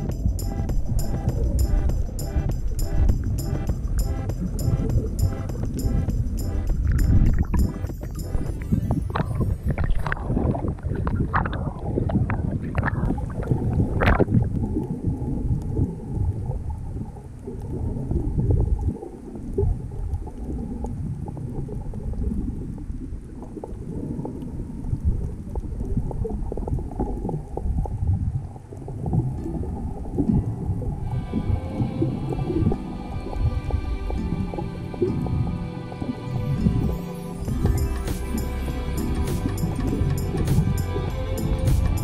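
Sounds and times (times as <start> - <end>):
muffled underwater rush: 0.0 - 41.1
water sloshing and splashing: 4.4 - 37.7.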